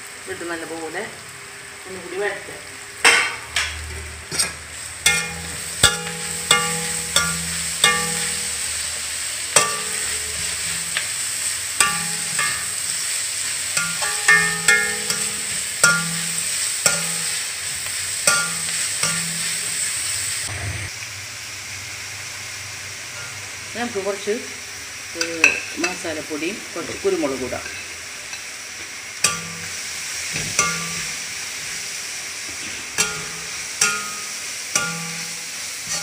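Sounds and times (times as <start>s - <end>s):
vegetables sizzling in oil: 0.0s - 36.0s
metal spoon scraping a pan: 4.3s - 20.0s, 29.2s - 29.8s, 30.4s - 31.2s, 32.6s - 36.0s.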